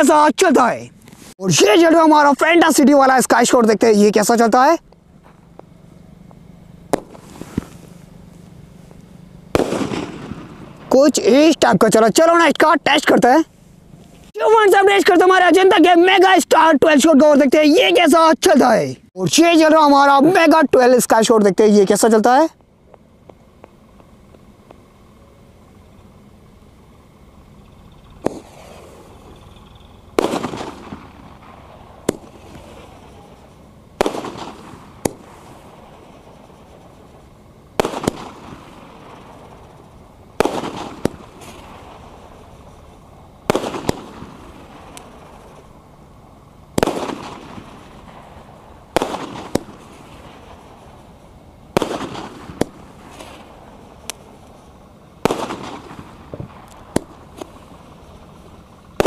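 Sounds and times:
sharp firework cracks: 0:04.9 - 0:08.4, 0:09.0 - 0:11.2, 0:28.1 - 0:45.8, 0:46.7 - 0:54.6, 0:55.2 - 0:59.0
firework bangs: 0:05.2 - 0:11.6, 0:28.0 - 0:45.8, 0:46.7 - 0:54.6, 0:55.2 - 0:59.0.

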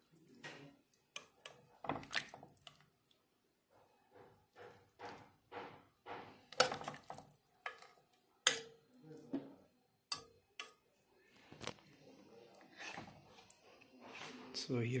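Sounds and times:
metal ladle scraping pot: 0:12.5 - 0:14.6.

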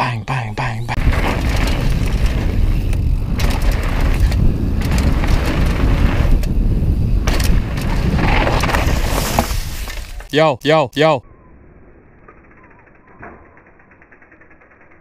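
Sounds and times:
wind: 0:00.0 - 0:15.0
tyres rumbling on dirt: 0:00.9 - 0:10.3
bike knocks and rattles: 0:01.0 - 0:10.0.

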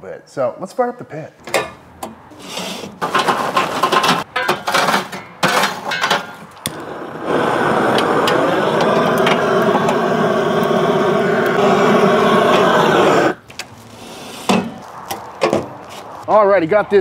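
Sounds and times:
charcoal clattering into grill: 0:03.0 - 0:06.5
gas torch roaring: 0:06.6 - 0:14.6.

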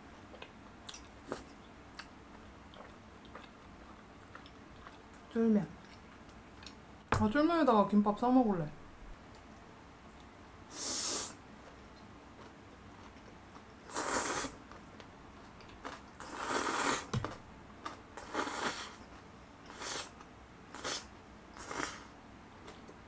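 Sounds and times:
person slurping noodles: 0:10.7 - 0:11.4, 0:13.9 - 0:14.6, 0:16.2 - 0:17.1, 0:18.2 - 0:19.0, 0:19.7 - 0:20.1, 0:20.7 - 0:22.1.

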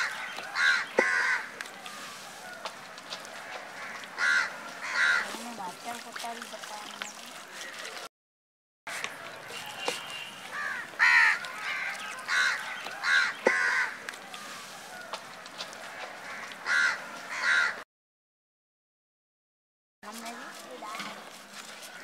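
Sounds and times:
crows cawing: 0:00.0 - 0:05.4, 0:08.9 - 0:14.0, 0:14.9 - 0:17.8.

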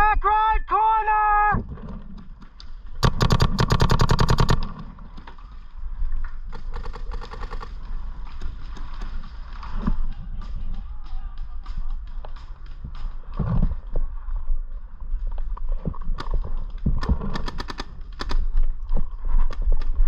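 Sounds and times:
paintball marker rapid shots: 0:03.0 - 0:05.3, 0:06.5 - 0:07.8, 0:17.0 - 0:18.5.

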